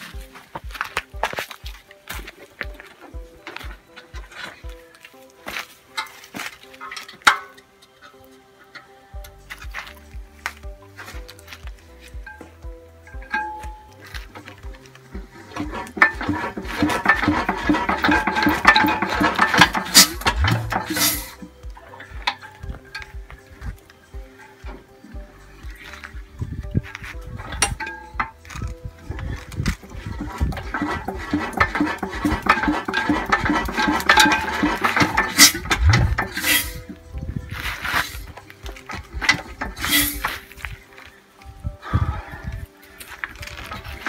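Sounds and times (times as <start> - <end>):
stationary engine clattering: 15.5 - 21.3, 29.9 - 36.5.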